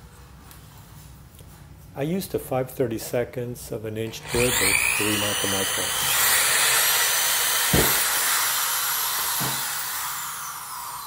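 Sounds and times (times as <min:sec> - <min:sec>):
power drill motor whine: 0:04.1 - 0:11.0.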